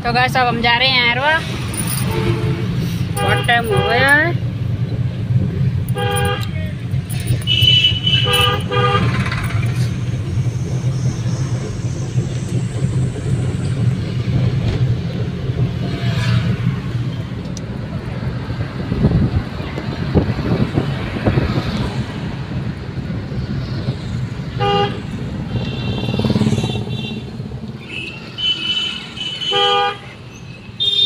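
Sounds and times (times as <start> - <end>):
car engine and road rumble: 0.0 - 31.0
vehicle horn toots: 2.0 - 4.2, 5.9 - 6.6, 7.4 - 9.6, 24.6 - 30.2, 30.8 - 31.0.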